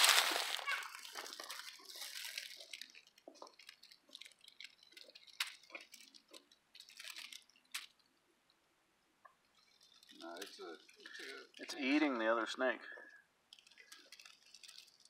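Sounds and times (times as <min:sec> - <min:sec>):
leaves rustling: 0:00.0 - 0:08.0, 0:09.6 - 0:12.0, 0:13.5 - 0:15.0
crackles in dry leaves: 0:00.0 - 0:08.1, 0:09.5 - 0:12.1, 0:13.5 - 0:15.0.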